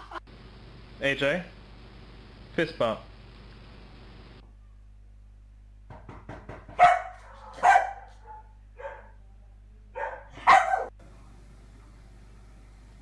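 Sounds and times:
dog barking: 6.8s - 9.2s, 10.0s - 11.0s.

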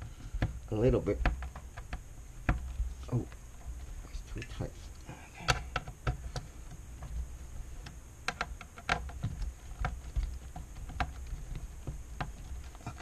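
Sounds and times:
screwdriver tapping metal frame: 7.8s - 13.0s.

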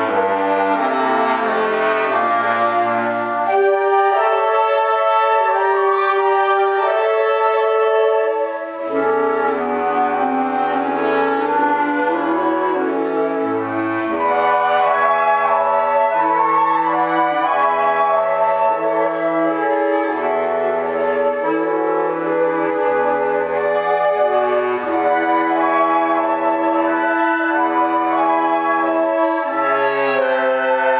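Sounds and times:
woodwind ensemble playing chords: 0.0s - 30.9s.

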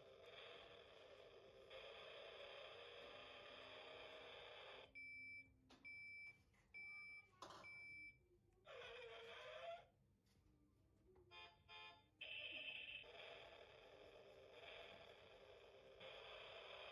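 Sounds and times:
toy car engine noise: 0.0s - 4.9s, 12.2s - 16.9s
beeping horn notes: 11.3s - 12.9s.

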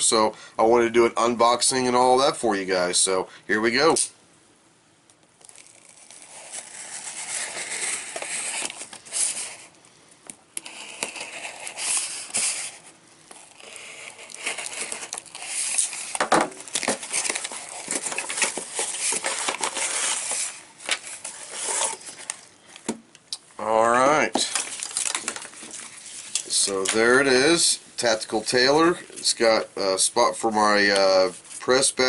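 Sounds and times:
cardboard box tearing and crinkling: 5.4s - 9.6s, 10.6s - 22.3s.

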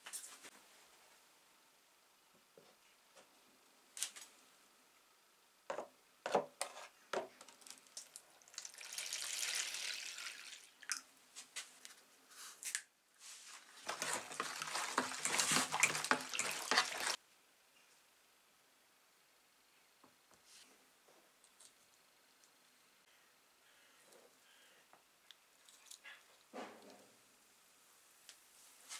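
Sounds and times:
water pouring from hose: 8.4s - 10.8s, 13.8s - 17.2s
water stirred and splashed: 13.6s - 17.2s.

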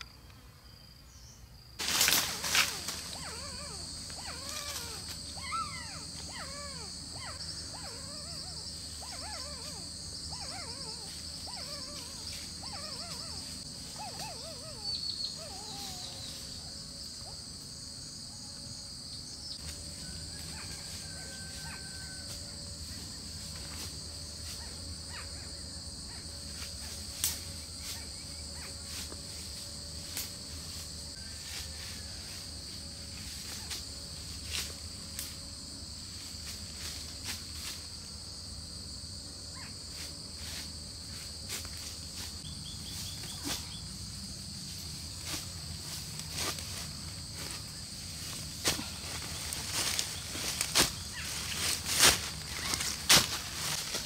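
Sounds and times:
insects droning: 0.0s - 54.0s
twigs snapping and leaves rustling: 1.8s - 3.5s, 48.3s - 54.0s
bird chirps: 14.0s - 16.4s.

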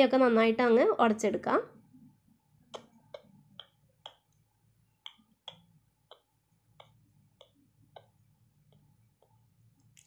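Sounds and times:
hand crushing vegetables in a pan: 2.7s - 10.0s.

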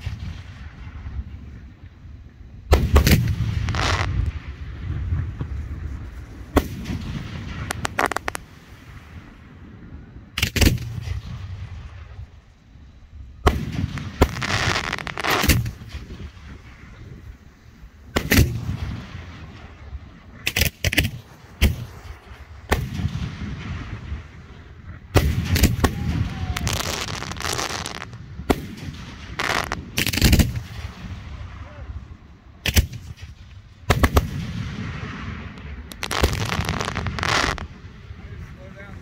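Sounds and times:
fireworks hissing crackle: 0.0s - 39.0s
fireworks shells bursting: 2.8s - 4.4s, 6.4s - 8.8s, 13.5s - 16.6s, 25.2s - 31.1s, 35.0s - 37.7s.

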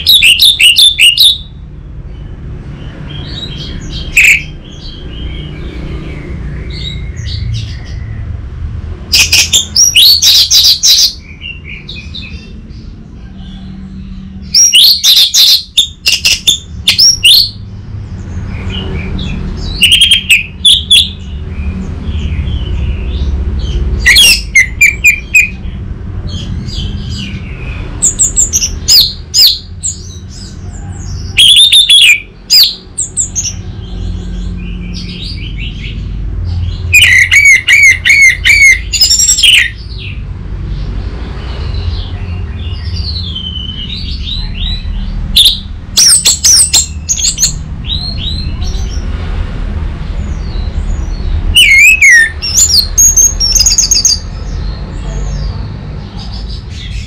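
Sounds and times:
thrush singing whistled notes: 0.0s - 1.6s, 3.1s - 5.5s, 9.1s - 12.4s, 13.6s - 17.7s, 18.5s - 21.4s, 22.2s - 25.8s, 31.1s - 33.6s, 36.9s - 40.2s, 42.6s - 48.6s, 50.4s - 54.3s.

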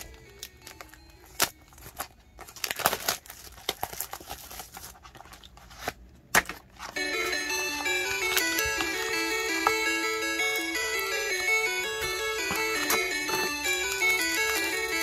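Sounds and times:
packaging crinkling: 0.0s - 6.1s
background music: 7.0s - 15.0s.

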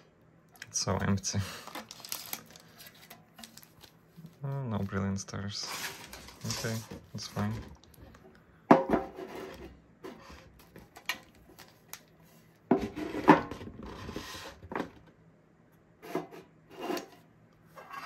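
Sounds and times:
rustling: 1.6s - 5.0s.

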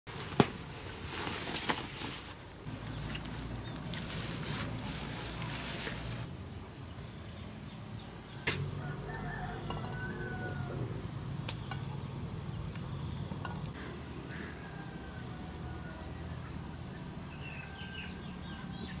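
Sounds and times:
noisy rustle: 0.1s - 6.3s
insects droning: 0.1s - 19.0s.

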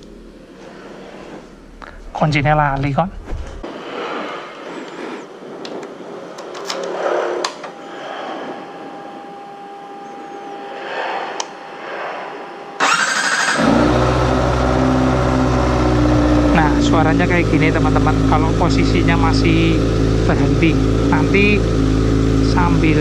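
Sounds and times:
motorcycle engine starting and idling: 12.8s - 23.0s.

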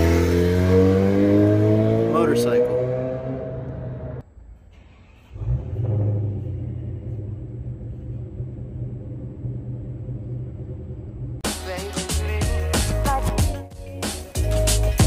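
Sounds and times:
truck engine starting and idling: 3.7s - 13.4s.

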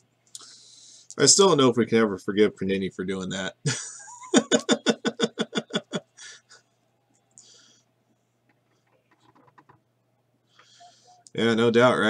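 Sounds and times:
faint breaths: 0.3s - 1.2s, 6.1s - 9.0s, 10.3s - 11.3s
man laughing: 3.6s - 6.6s.

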